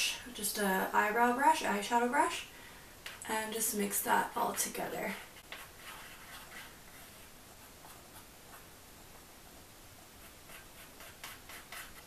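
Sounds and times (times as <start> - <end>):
brush scratching on palette: 4.2 - 8.7, 10.1 - 12.0.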